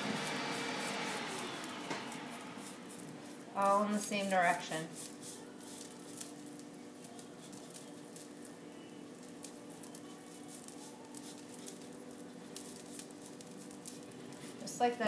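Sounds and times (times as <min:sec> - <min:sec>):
paintbrush scratchy strokes: 0:00.0 - 0:06.4.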